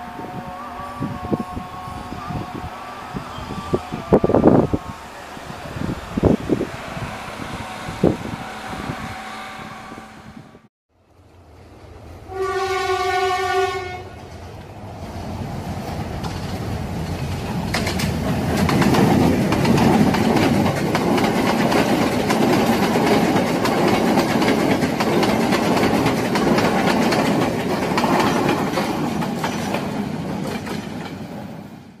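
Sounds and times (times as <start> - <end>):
train wheels clattering over rails: 14.2 - 31.7.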